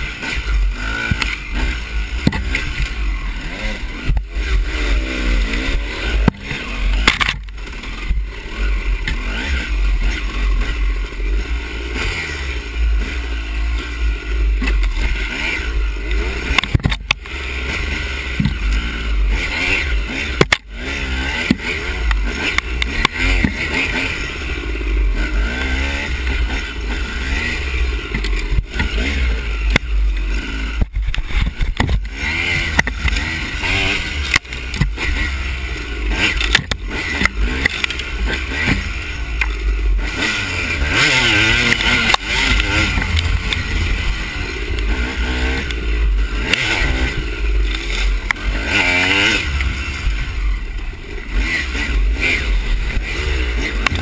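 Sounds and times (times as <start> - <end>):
dirt bike engine revving: 0.0 - 54.0
heavy low rumble: 24.2 - 54.0.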